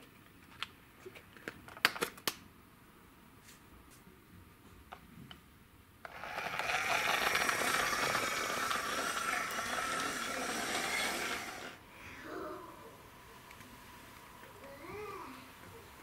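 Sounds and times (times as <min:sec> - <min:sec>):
toy truck wheels rattling on wood: 0:06.1 - 0:11.8.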